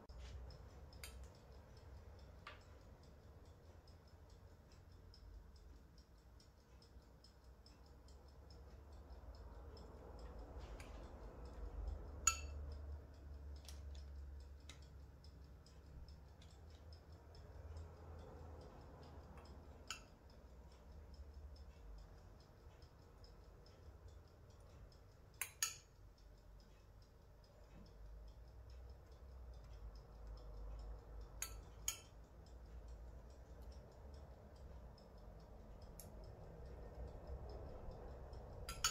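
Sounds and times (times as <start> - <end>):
faint even ticking: 0.0 - 38.9
soft clicks: 0.0 - 38.9
metal spoon clinking: 12.2 - 12.6, 25.4 - 26.0, 31.4 - 32.2, 38.6 - 38.9.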